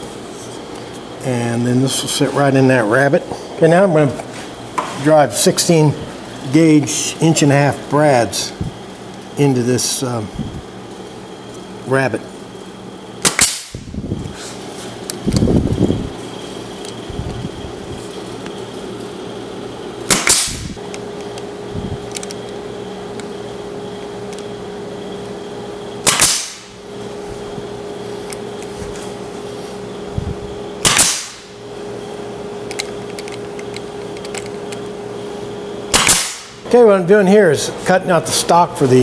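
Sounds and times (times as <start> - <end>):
steady hum: 0.0 - 39.0
pneumatic nailer firing: 13.2 - 14.0, 20.0 - 20.9, 26.0 - 26.8, 30.8 - 31.6, 35.9 - 36.6.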